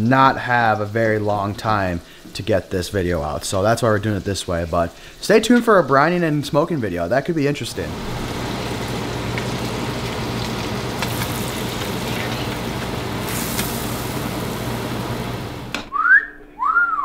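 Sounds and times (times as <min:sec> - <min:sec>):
fish sizzling in a frying pan: 0:07.8 - 0:15.7.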